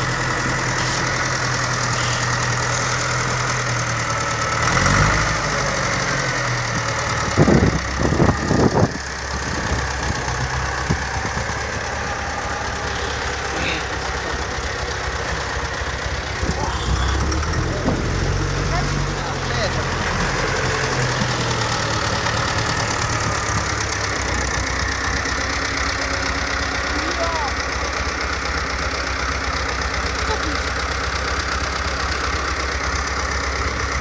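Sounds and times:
tractor diesel engine running: 0.0 - 34.0
loud short noise bursts: 16.6 - 17.4.

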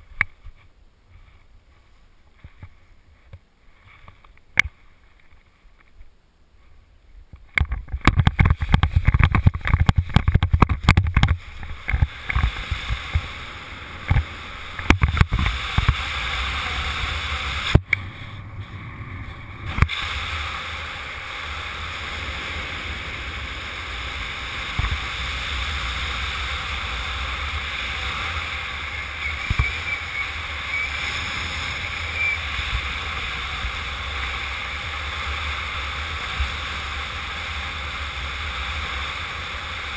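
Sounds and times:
heavy thumping and buffeting: 7.6 - 13.4
wind rushing over microphone: 7.6 - 39.5.

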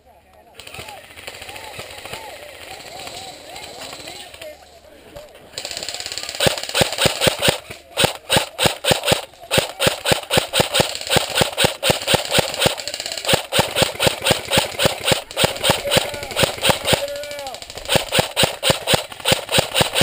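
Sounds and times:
rapid sharp clicks: 5.5 - 20.0.

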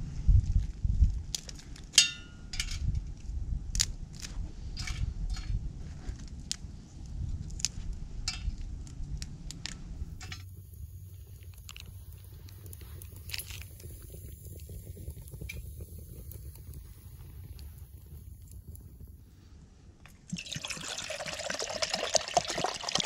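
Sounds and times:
steady low rumble: 0.0 - 20.3
sticks crackling and popping in stove: 0.4 - 19.2.

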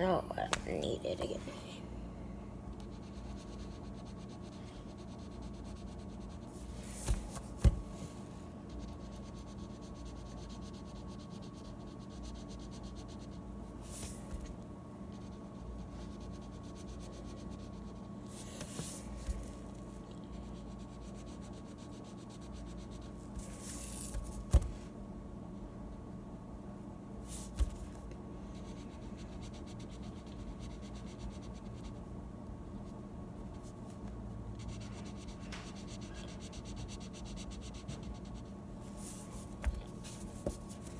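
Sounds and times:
background hum: 0.0 - 40.9
marker knocking on table: 7.1 - 7.8.

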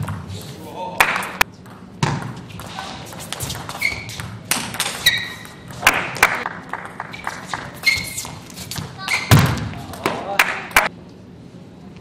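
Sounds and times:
shoes squeaking on floor: 2.4 - 5.8, 7.1 - 9.5.

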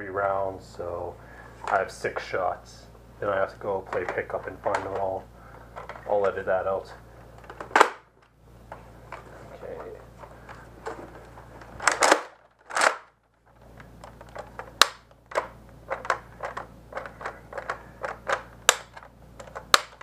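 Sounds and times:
plastic clicks and clacks: 3.9 - 5.2, 13.8 - 20.0.

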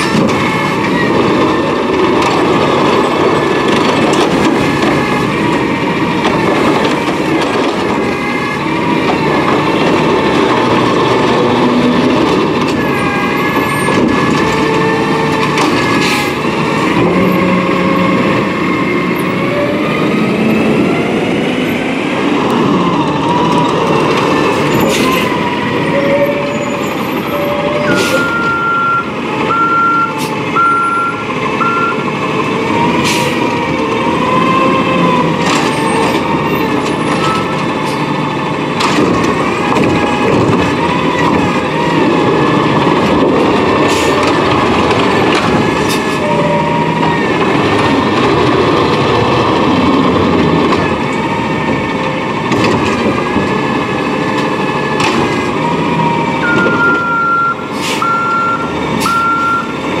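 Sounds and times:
garbage truck running: 0.0 - 60.0
backup alarm beeping: 27.6 - 32.0, 56.4 - 59.8.

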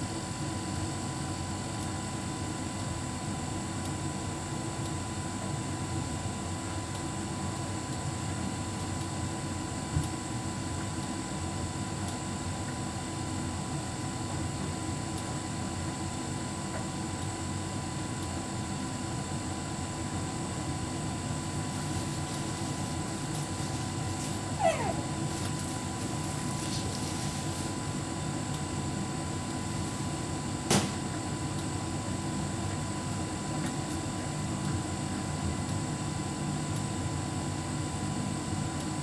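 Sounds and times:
tumble dryer humming: 20.4 - 29.7.

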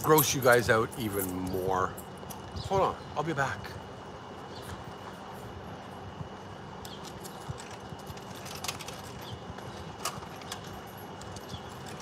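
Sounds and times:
distant traffic hum: 0.0 - 12.0.

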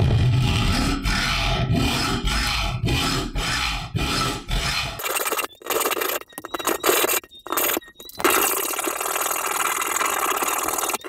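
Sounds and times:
hacksaw sawing through metal: 0.4 - 5.7.

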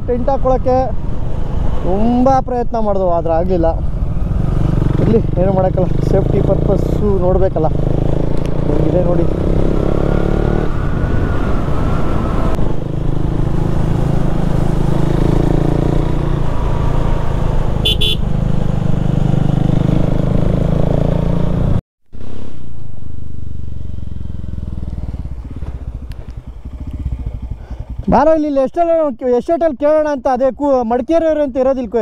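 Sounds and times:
motorcycle engine drone: 3.0 - 28.8.

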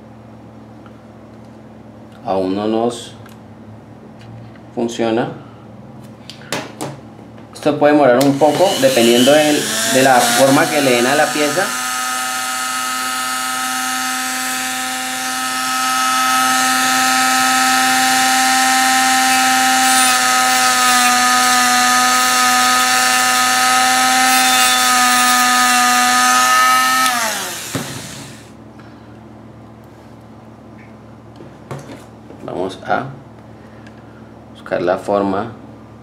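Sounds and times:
rotary tool whining: 8.2 - 28.5
motor spinning down: 8.3 - 20.8, 22.0 - 28.5.

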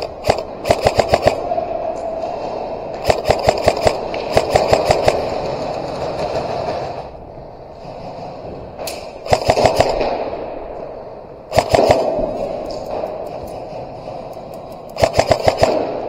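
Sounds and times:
airsoft guns firing bursts: 0.0 - 1.6, 3.0 - 7.1, 9.2 - 10.4, 11.5 - 14.3, 14.9 - 16.0.

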